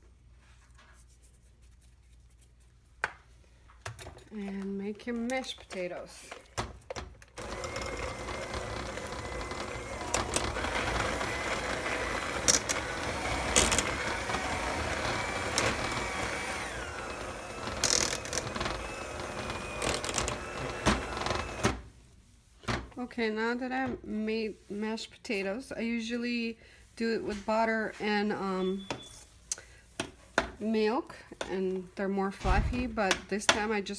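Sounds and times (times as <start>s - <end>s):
electric hand mixer whining: 7.4s - 21.8s.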